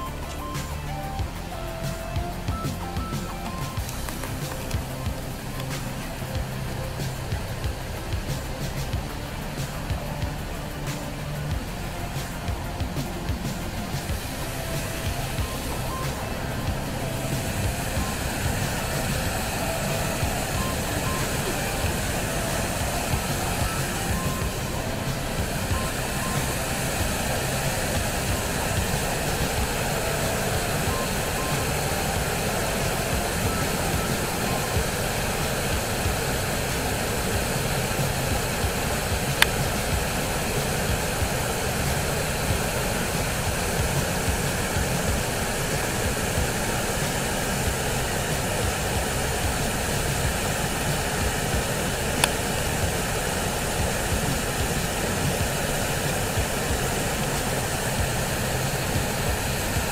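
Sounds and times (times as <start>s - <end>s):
waterfall rushing: 0.0s - 59.9s.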